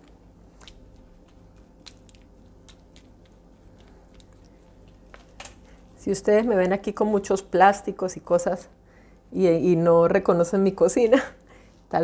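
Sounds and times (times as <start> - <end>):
soft squishing: 0.0 - 8.1.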